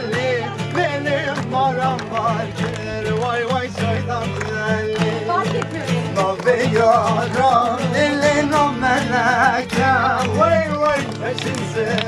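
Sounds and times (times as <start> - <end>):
acoustic guitar strumming: 0.0 - 12.0
voices singing with vibrato: 0.0 - 12.0.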